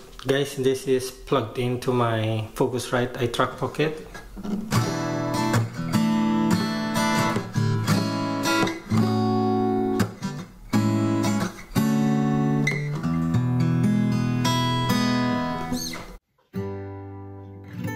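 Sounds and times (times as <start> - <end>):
acoustic guitar strumming chords: 4.2 - 17.9.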